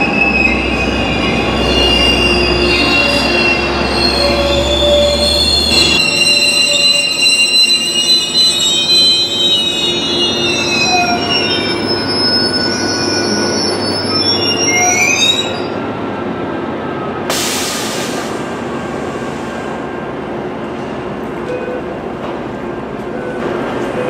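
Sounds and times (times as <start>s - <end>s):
train brakes squealing: 0.0s - 15.8s
train rumble: 14.8s - 24.0s.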